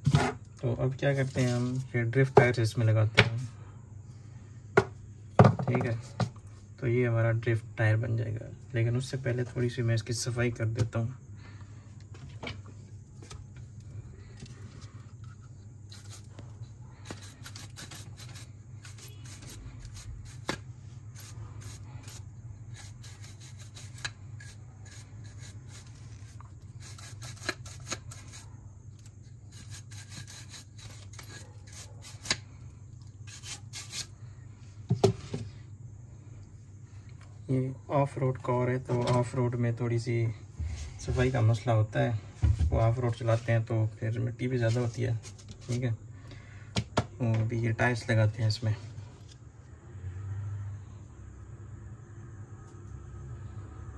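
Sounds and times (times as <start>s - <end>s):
steady low hum: 0.0s - 53.9s
scratchy rubbing: 1.1s - 1.9s, 15.3s - 16.4s, 17.0s - 32.4s, 33.2s - 34.2s.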